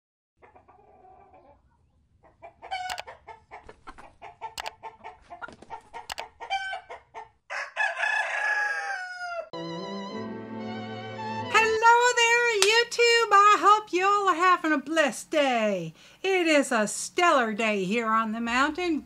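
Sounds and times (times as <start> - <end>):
chickens clucking: 0.4 - 8.1
rooster crowing: 6.4 - 9.6.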